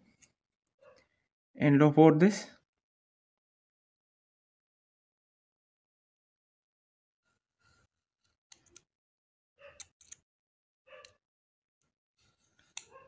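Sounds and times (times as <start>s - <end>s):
small handling clicks: 8.5s - 8.9s, 9.7s - 10.3s, 12.6s - 13.0s.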